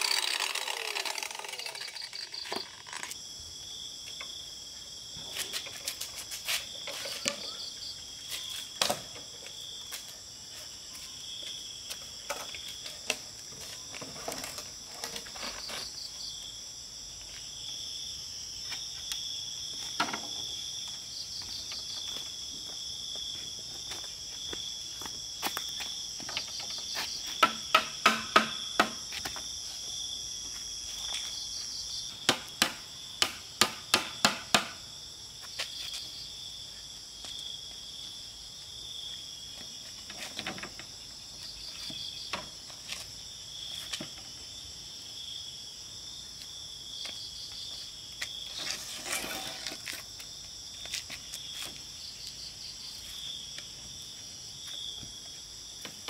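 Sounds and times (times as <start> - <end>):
high insect chorus: 0.0 - 56.0
hammer striking bamboo: 27.4 - 29.0, 32.2 - 34.8.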